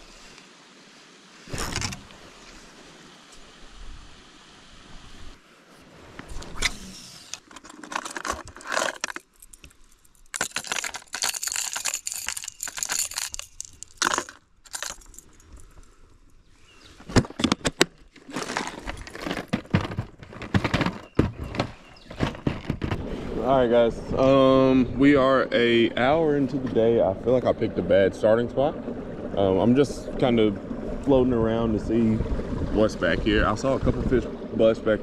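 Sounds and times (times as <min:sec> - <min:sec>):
lures clattering against plastic: 0:07.4 - 0:15.6
rustling handling noise: 0:07.4 - 0:16.1, 0:16.8 - 0:23.2.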